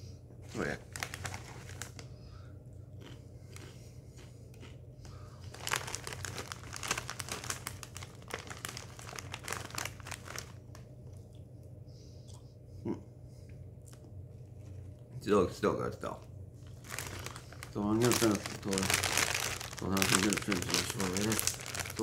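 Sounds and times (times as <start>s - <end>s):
chip bag crinkling: 0.5s - 2.1s, 3.0s - 10.9s, 16.6s - 22.0s.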